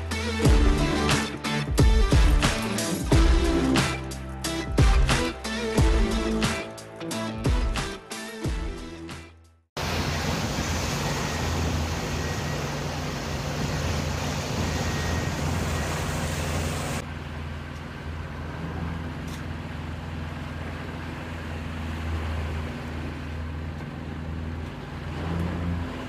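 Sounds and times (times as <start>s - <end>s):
boat engine humming: 0.0s - 9.1s, 9.8s - 26.0s
wind and water rushing: 9.8s - 26.0s.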